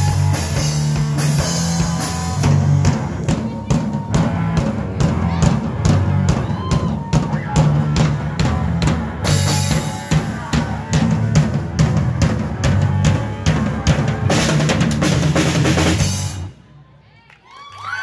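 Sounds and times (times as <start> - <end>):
live rock band playing: 0.0 - 16.6
audience cheering and whistling: 6.3 - 8.0, 17.4 - 18.0.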